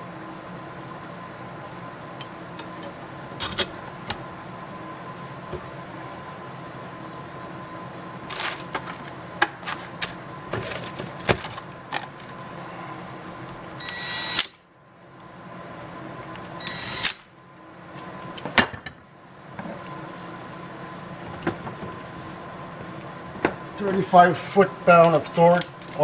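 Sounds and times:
cordless drill whirring: 16.6s - 17.1s.

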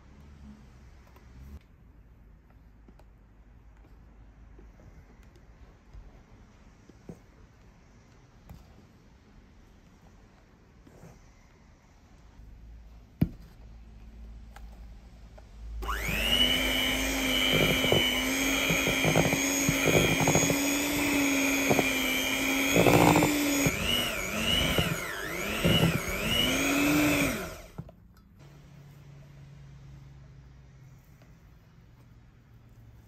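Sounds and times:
electric hand mixer running: 15.8s - 27.9s.

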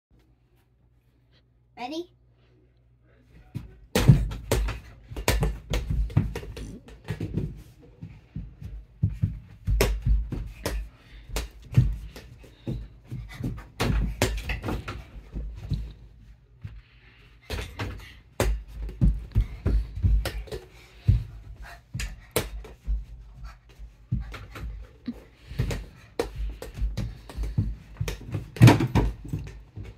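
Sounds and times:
basketball dribbling on wooden floor: 4.0s - 7.6s, 25.5s - 29.9s.

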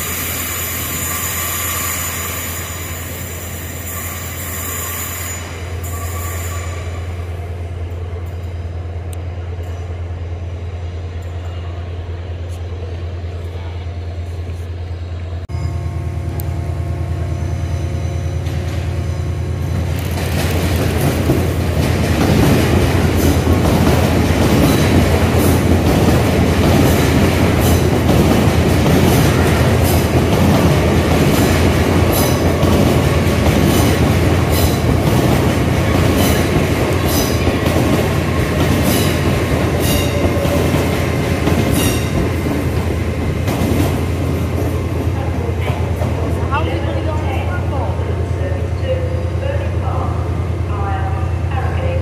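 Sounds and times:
train rumble and hum: 0.0s - 52.0s
train wheels clicking over rail joints: 19.8s - 45.1s.

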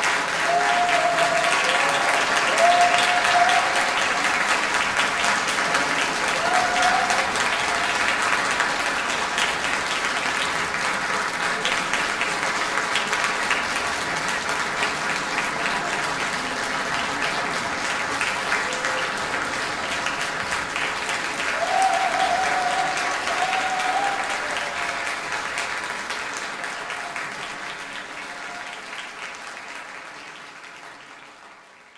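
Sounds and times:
audience applauding: 0.0s - 31.9s
person cheering: 0.4s - 4.0s, 6.3s - 7.9s, 21.5s - 25.0s.

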